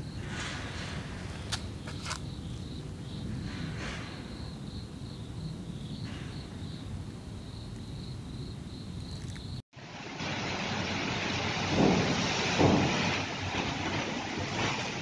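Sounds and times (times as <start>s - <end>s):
insect chirping trill: 1.6s - 9.6s.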